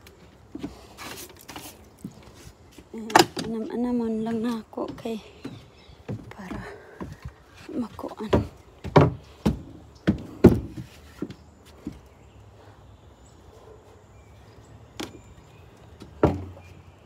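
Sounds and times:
wood knocking against wood: 0:04.9 - 0:11.4, 0:16.0 - 0:16.7.

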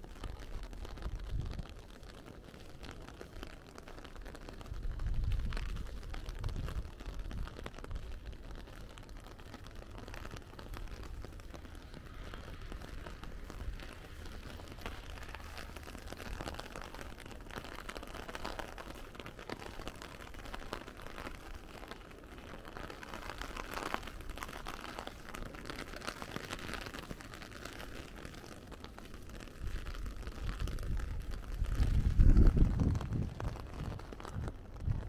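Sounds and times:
wind rumble on microphone: 0:00.0 - 0:19.0, 0:29.2 - 0:35.0
steady rain falling: 0:00.0 - 0:35.0.

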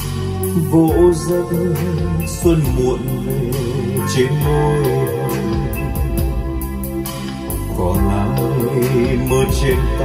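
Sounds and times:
ballad over loudspeakers: 0:00.0 - 0:10.0.

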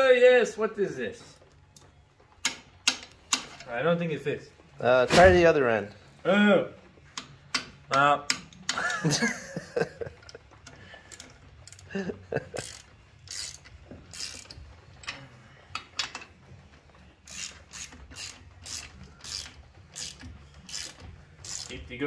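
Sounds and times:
hand ratchet clicking: 0:02.4 - 0:03.6, 0:07.1 - 0:09.1, 0:10.6 - 0:16.3, 0:17.2 - 0:22.0.

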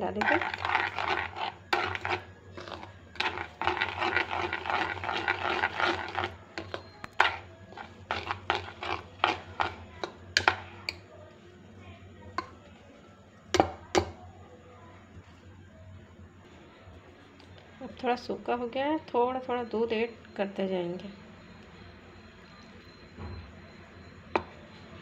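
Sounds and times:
spoon stirring thick batter: 0:00.0 - 0:14.2.

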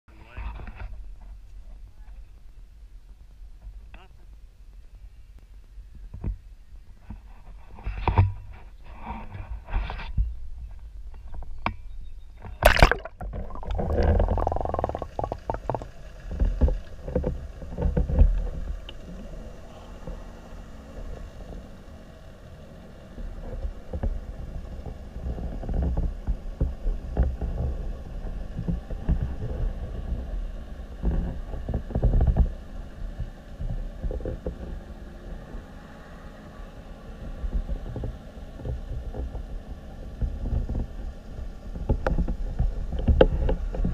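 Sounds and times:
underwater rumble: 0:12.3 - 0:35.8, 0:36.6 - 0:43.9
splash into lake water: 0:12.6 - 0:15.8.

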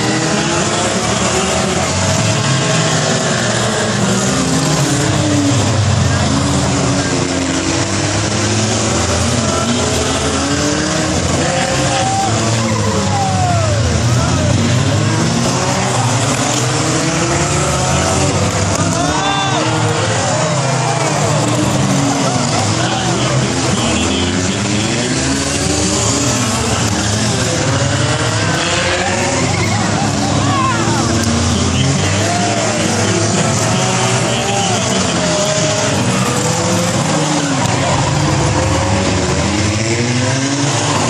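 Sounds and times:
race cars engines roaring: 0:00.0 - 0:41.0.

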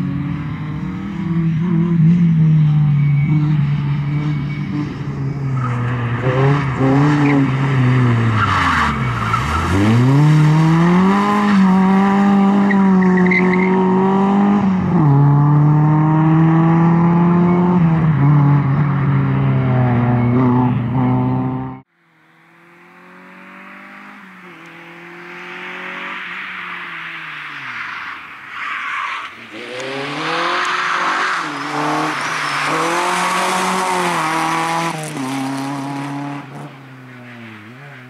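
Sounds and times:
rally car engine revving: 0:00.0 - 0:26.3, 0:29.5 - 0:36.8
tyre squeal: 0:26.2 - 0:34.4.

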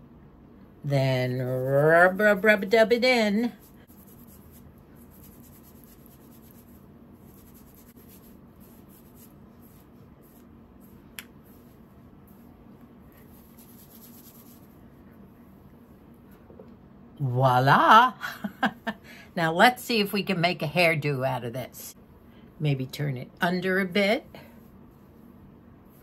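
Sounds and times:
fingers rustling hair: 0:01.1 - 0:14.9.

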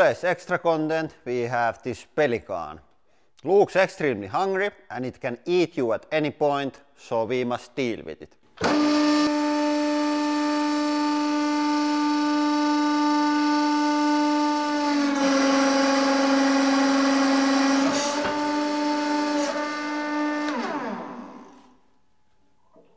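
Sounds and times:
hydraulic press pump humming: 0:08.6 - 0:21.9.

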